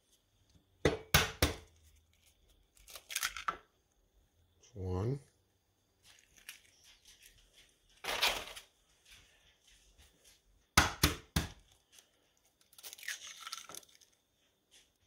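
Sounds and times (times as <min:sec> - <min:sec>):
crackling handling noise: 0:01.7 - 0:04.0, 0:06.0 - 0:09.4, 0:11.6 - 0:15.0
eggshell cracking on bowl rim: 0:12.7 - 0:14.2.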